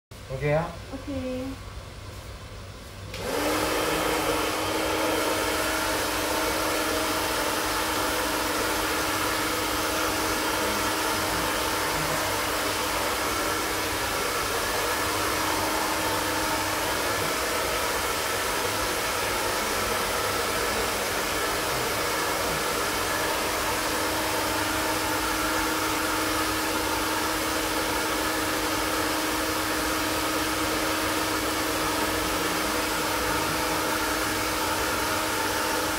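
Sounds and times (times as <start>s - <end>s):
blower fan running: 0.2s - 35.9s
blower switch: 3.1s - 28.1s.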